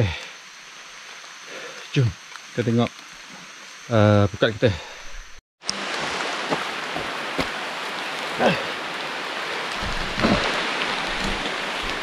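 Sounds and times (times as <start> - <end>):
heavy rain falling: 5.7 - 12.0.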